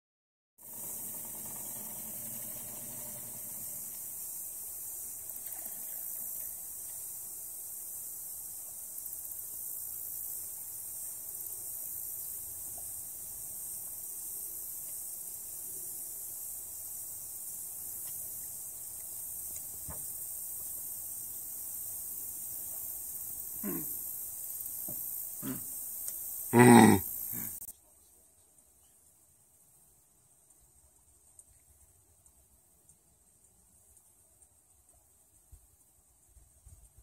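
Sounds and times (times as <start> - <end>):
high-pitched insect chorus: 0.6 - 27.7.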